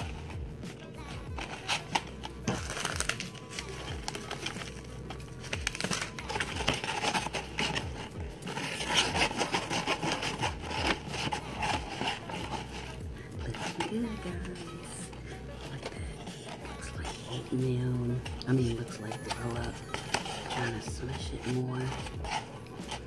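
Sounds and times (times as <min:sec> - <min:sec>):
background music with beat: 0:00.0 - 0:23.0
spoon scraping in styrofoam cup: 0:00.0 - 0:23.0.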